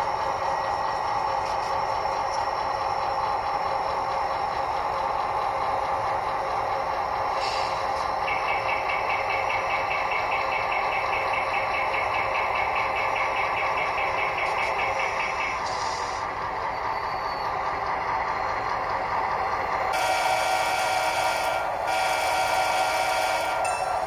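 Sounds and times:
model locomotive engine sound: 0.0s - 24.0s
rapid high ringing: 20.0s - 24.0s.

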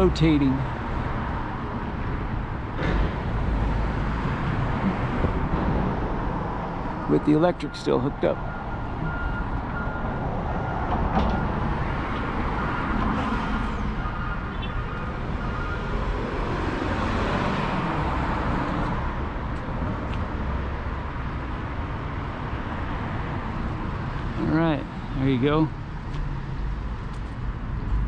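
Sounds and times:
street traffic noise: 0.0s - 28.0s
vehicle passing: 8.2s - 19.3s.

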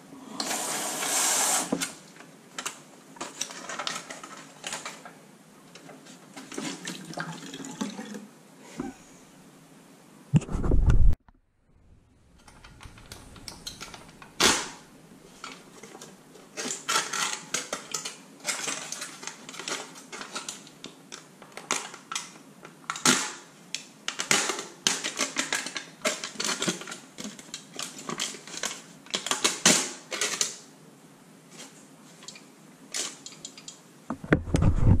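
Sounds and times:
aluminum foil crinkling: 2.6s - 5.0s, 12.4s - 23.4s, 24.1s - 30.6s.

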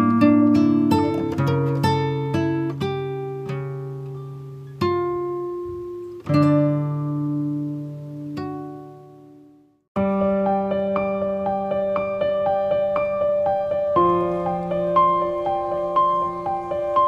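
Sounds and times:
plucked string music: 0.0s - 9.6s.

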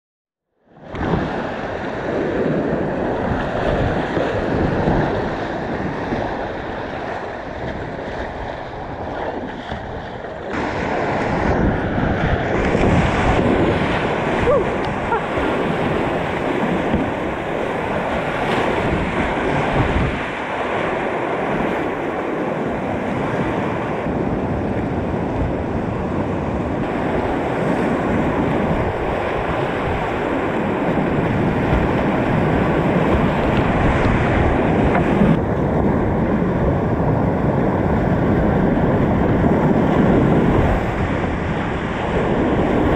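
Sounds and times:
wind buffeting microphone: 0.8s - 42.9s
whitewater rapids rushing: 10.4s - 11.5s, 12.4s - 24.1s, 26.8s - 35.4s.

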